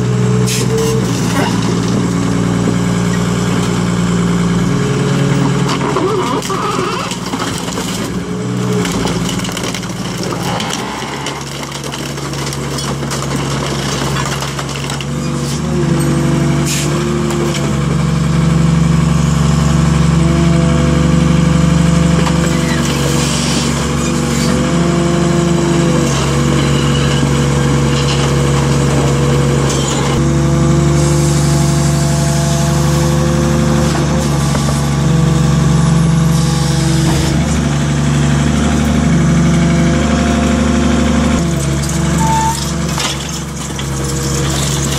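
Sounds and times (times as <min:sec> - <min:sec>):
baler diesel engine and hydraulics: 0:00.0 - 0:12.3, 0:15.0 - 0:44.9
metal crumpling knocks: 0:05.7 - 0:15.5.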